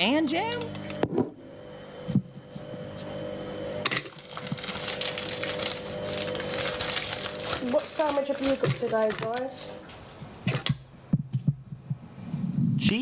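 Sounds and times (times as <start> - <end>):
plastic bag crinkling: 4.1 - 9.6.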